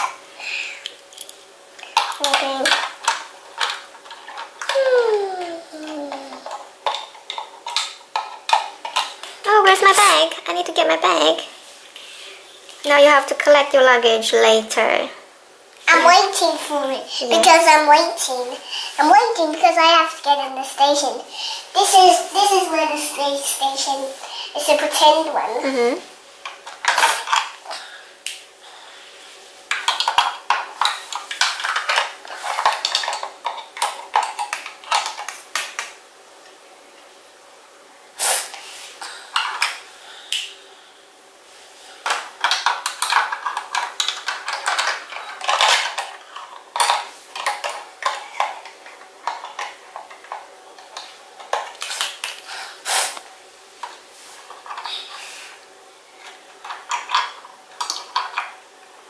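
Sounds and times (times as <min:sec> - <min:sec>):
plastic toy pieces clicking: 0:42.4 - 0:48.5.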